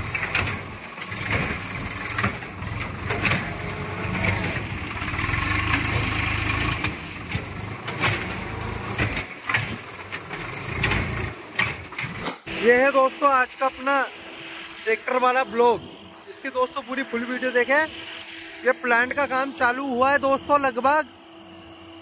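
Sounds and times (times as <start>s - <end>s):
tractor diesel engine running: 0.0s - 14.7s.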